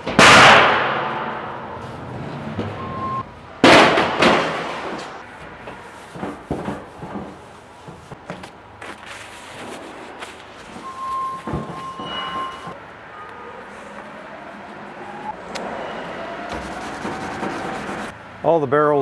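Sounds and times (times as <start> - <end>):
electronic beep: 2.8 - 3.3, 10.8 - 12.8
knocks and clatter: 3.6 - 8.5.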